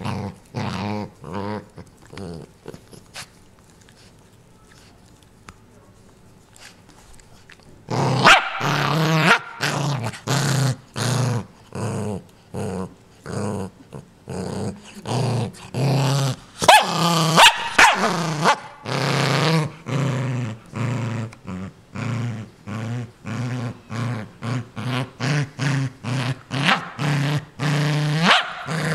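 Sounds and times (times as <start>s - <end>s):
small dog growling: 0.0s - 3.2s, 7.9s - 17.4s, 18.0s - 28.9s
dog snarling: 7.9s - 28.9s.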